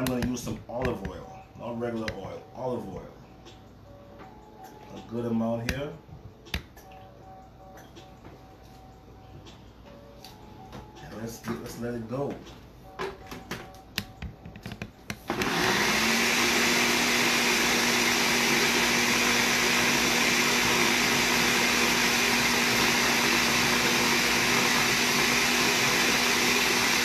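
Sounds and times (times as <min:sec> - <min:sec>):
blender motor running: 0:15.3 - 0:27.0.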